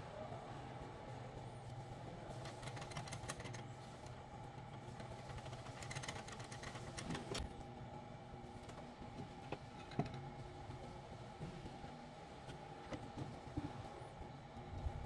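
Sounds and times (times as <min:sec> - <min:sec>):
faint machine hum: 0:00.0 - 0:15.0.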